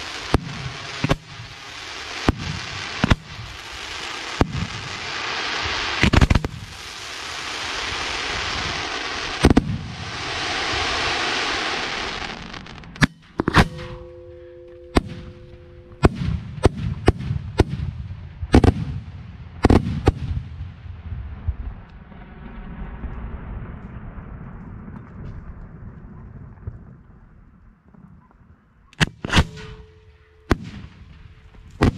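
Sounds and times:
fireworks crackling hiss: 0:00.0 - 0:13.0
fireworks bangs: 0:00.0 - 0:26.9, 0:29.0 - 0:31.9.

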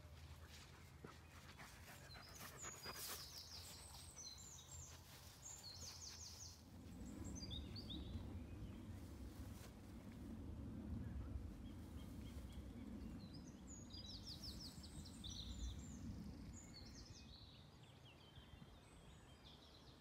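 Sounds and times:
songbird chirping: 0:00.0 - 0:10.2, 0:11.5 - 0:20.0
rustling in long grass: 0:03.0 - 0:13.2.

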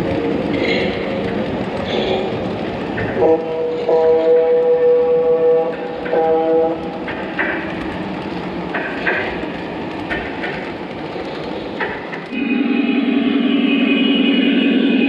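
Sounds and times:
wheels clicking over rail joints: 0:00.0 - 0:12.4
loud mechanical drone: 0:12.4 - 0:15.0.

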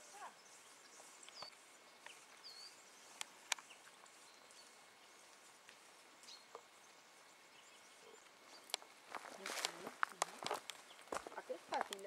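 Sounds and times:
faint bird chirps: 0:00.0 - 0:08.9.

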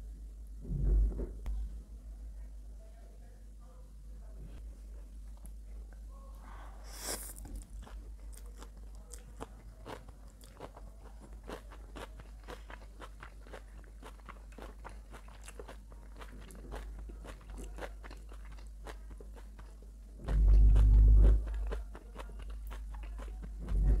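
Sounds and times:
chewing crunchy noodles: 0:06.8 - 0:24.0.

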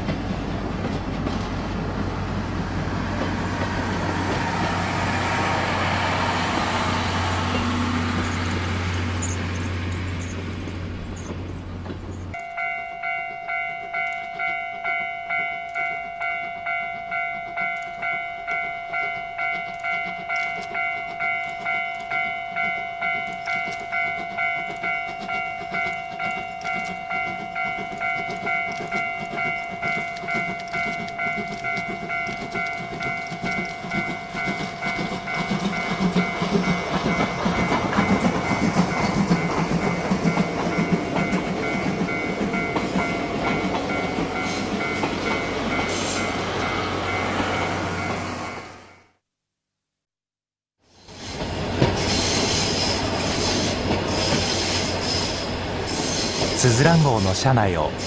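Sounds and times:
steam locomotive exhaust chuffing: 0:00.0 - 0:12.7, 0:16.2 - 0:48.8
train coaches rushing past: 0:00.0 - 0:49.0, 0:50.9 - 0:58.0.

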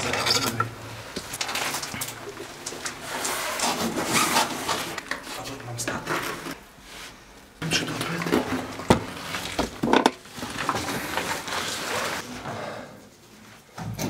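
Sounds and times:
clothing scraping against concrete: 0:10.3 - 0:12.3.

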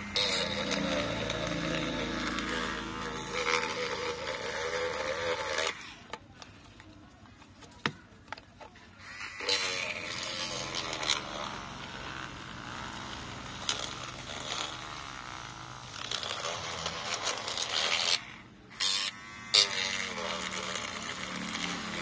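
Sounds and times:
electric glue-removal tool buzzing: 0:00.0 - 0:06.2, 0:09.0 - 0:22.0
metal rod scraping adhesive: 0:00.0 - 0:06.2, 0:09.2 - 0:22.0.

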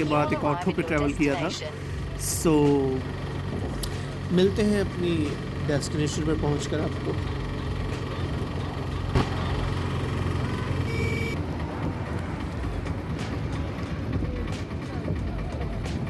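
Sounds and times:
auto rickshaw engine running: 0:00.0 - 0:16.0
horn beep: 0:10.4 - 0:11.4.

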